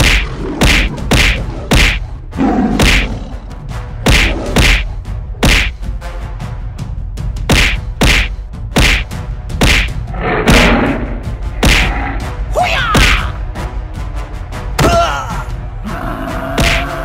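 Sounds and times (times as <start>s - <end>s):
heavy thuds and whacks: 0.0s - 2.1s, 2.7s - 3.2s, 4.0s - 5.8s, 7.4s - 12.0s
background music: 0.0s - 17.0s.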